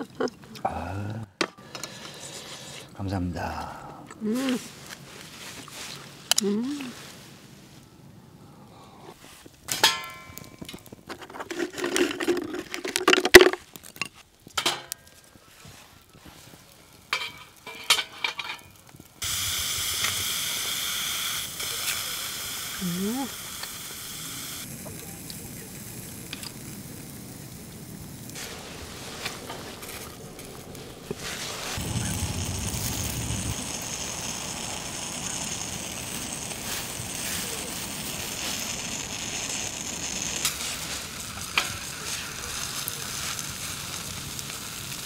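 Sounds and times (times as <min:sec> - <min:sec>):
fire crackling and hissing: 0:00.6 - 0:45.0
fuel chunks rustling and clattering: 0:09.3 - 0:19.2
sharp fire pops: 0:09.5 - 0:11.2, 0:16.4 - 0:20.8, 0:24.6 - 0:45.0
sharp crack: 0:27.8 - 0:43.8.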